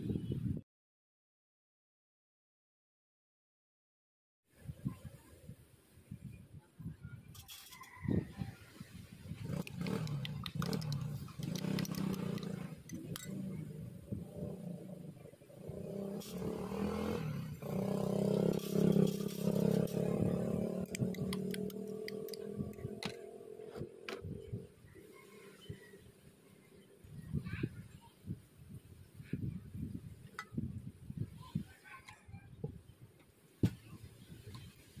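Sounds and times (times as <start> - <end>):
scattered clicks and clinks: 9.6 - 13.4.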